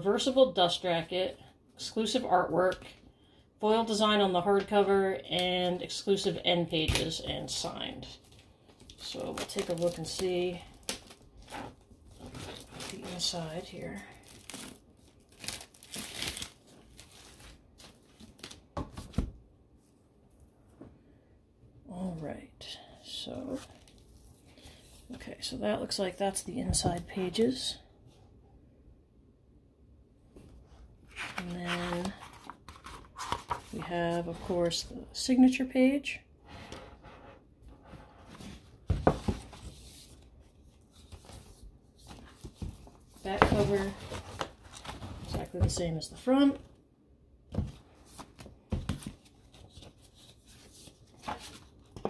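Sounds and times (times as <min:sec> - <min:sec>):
book pages rustling: 0:31.0 - 0:34.8, 0:47.7 - 0:52.0
book jacket rustling: 0:31.1 - 0:34.8.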